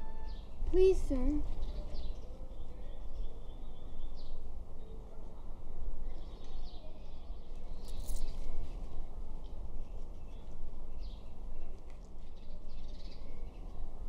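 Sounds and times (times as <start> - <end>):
bird chirps: 0.0 - 0.6.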